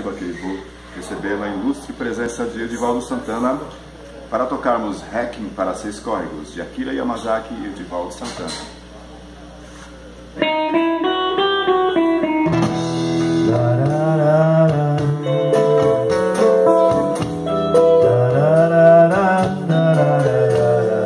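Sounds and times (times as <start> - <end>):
amp hum: 0.0 - 21.0
electric guitar melody: 10.4 - 21.0
low bass line: 12.2 - 21.0.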